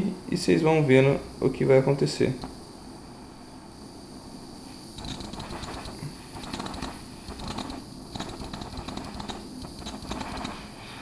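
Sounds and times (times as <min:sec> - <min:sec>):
butane torch sputtering: 0:02.2 - 0:02.8, 0:04.6 - 0:11.0
short puffs of hiss: 0:04.5 - 0:11.0
crackling clicks: 0:05.0 - 0:10.7.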